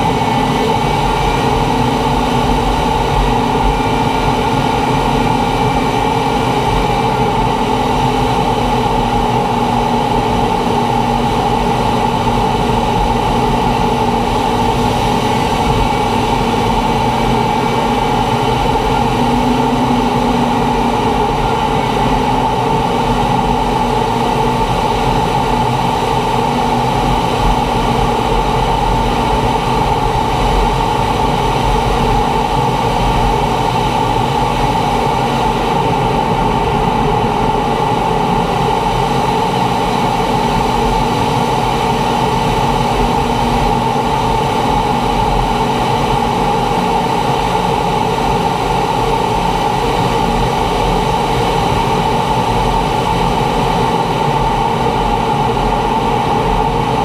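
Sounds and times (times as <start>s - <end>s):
jet engine cockpit hum: 0.0s - 57.0s.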